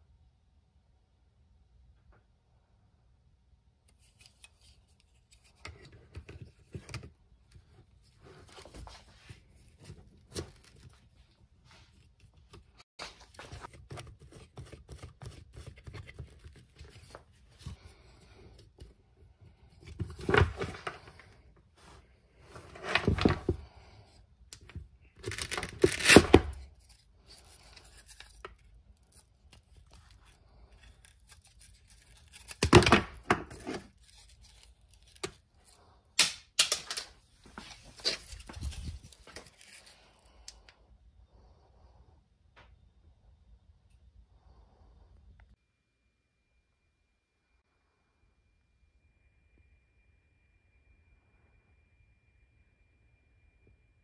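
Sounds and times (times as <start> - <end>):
hook-and-loop fastener ripping: 25.2 - 35.4.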